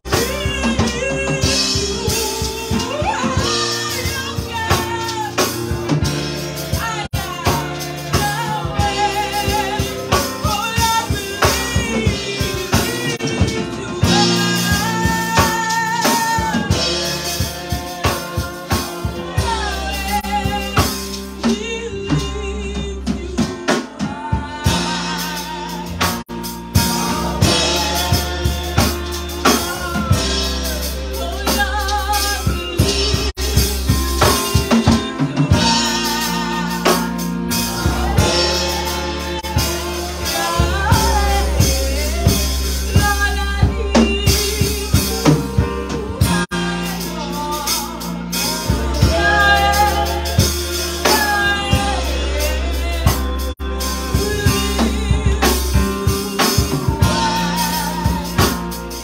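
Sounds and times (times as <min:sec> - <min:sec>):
drum kit: 0:00.0 - 0:59.0
singer singing with vibrato: 0:00.0 - 0:59.0.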